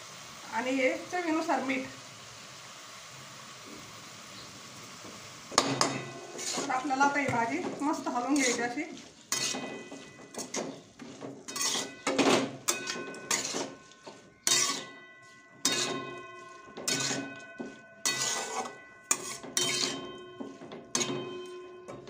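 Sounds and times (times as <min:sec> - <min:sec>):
metal spatula scraping a pan: 0:05.6 - 0:22.0.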